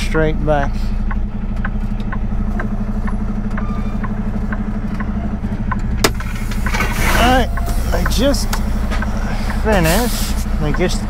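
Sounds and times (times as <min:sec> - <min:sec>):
diesel truck engine running: 0:00.0 - 0:11.0
faint regular ticking: 0:01.0 - 0:06.0, 0:10.6 - 0:11.0.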